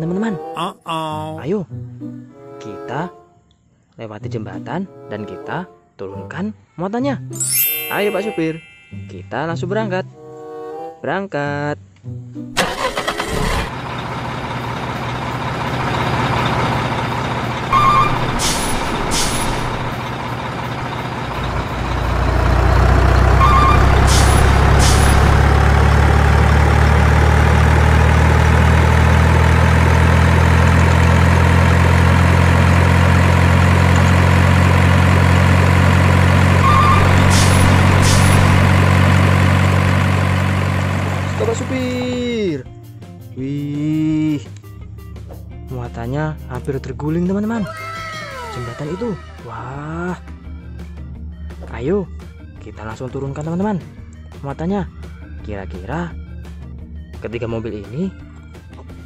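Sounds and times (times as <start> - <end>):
diesel truck engine running: 12.6 - 43.3
air brake hiss: 18.3 - 19.7, 37.2 - 38.4.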